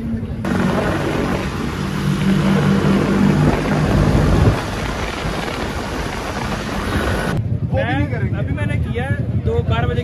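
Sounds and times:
scooter engines humming: 0:00.0 - 0:07.4
wind and road noise: 0:00.0 - 0:10.0.

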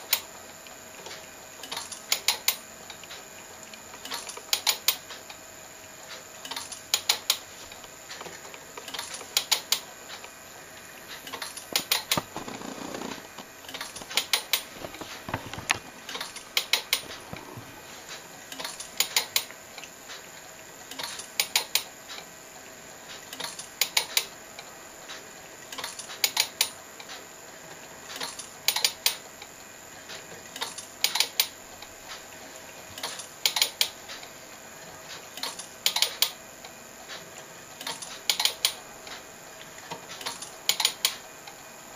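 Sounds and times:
sharp mechanical clicks: 0:00.0 - 0:05.4, 0:06.1 - 0:10.4, 0:11.1 - 0:17.2, 0:18.1 - 0:22.3, 0:23.1 - 0:27.2, 0:28.1 - 0:29.5, 0:30.1 - 0:32.2, 0:33.0 - 0:34.3, 0:35.1 - 0:36.4, 0:37.8 - 0:39.2, 0:39.9 - 0:41.6
faint steady hum: 0:00.0 - 0:41.9.

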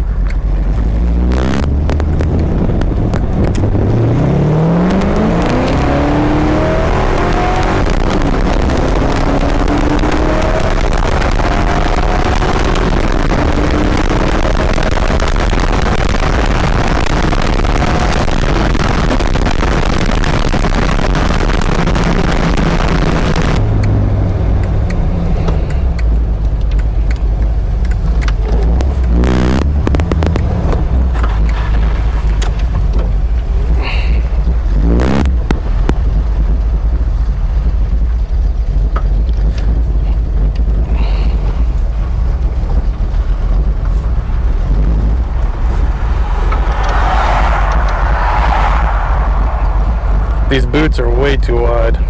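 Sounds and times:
car engine accelerating: 0:00.0 - 0:52.0
road and wind rush: 0:00.0 - 0:52.0.

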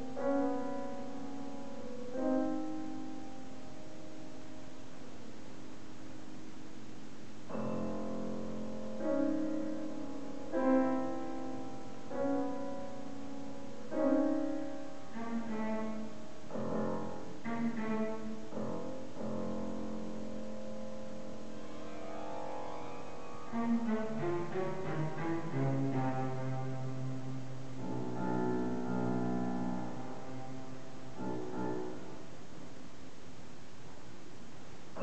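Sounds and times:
piano chords: 0:00.0 - 0:35.0
bowed cello: 0:13.7 - 0:20.0, 0:21.4 - 0:32.2.

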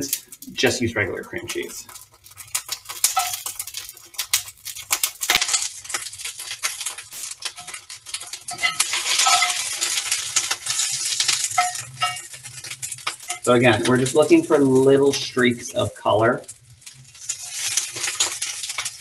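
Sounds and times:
scallions sizzling and popping: 0:00.0 - 0:19.0
metal tongs scraping pan: 0:01.9 - 0:04.5, 0:05.1 - 0:13.6.

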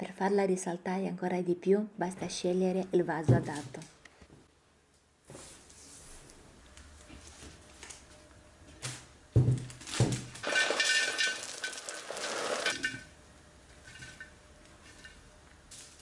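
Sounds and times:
flowerpot knocks and thuds: 0:09.3 - 0:10.3.

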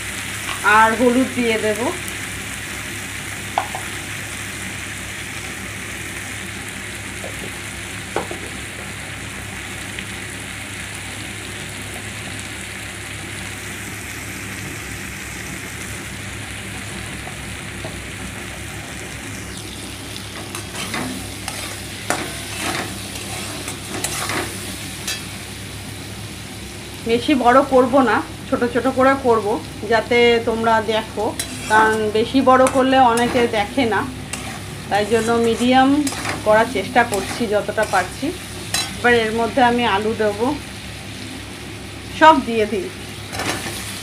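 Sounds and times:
onions frying in oil: 0:00.0 - 0:44.0
metal spatula scraping pan: 0:20.4 - 0:25.3, 0:31.3 - 0:39.1.

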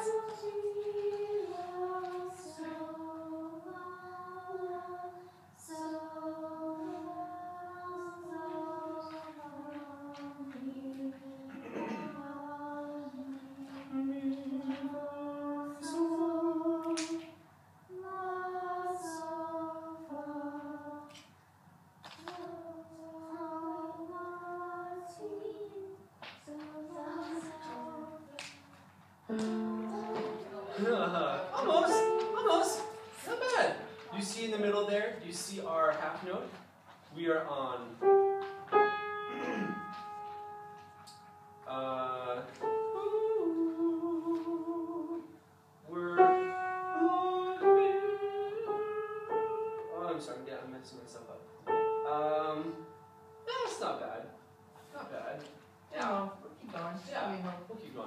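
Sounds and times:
choir singing long notes: 0:29.3 - 0:33.2, 0:38.8 - 0:49.8.

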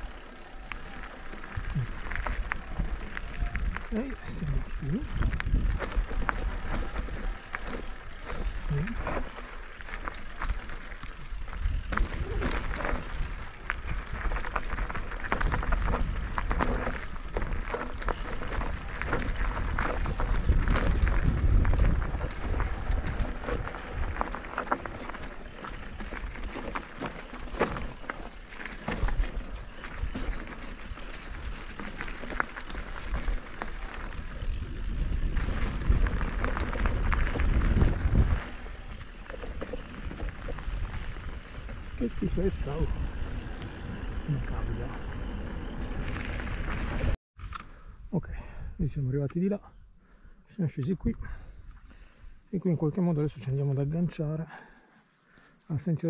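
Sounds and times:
tyres crunching over gravel: 0:00.0 - 0:47.2
wind rumbling on microphone: 0:00.0 - 0:48.9
bike knocks and rattles: 0:05.0 - 0:42.8.

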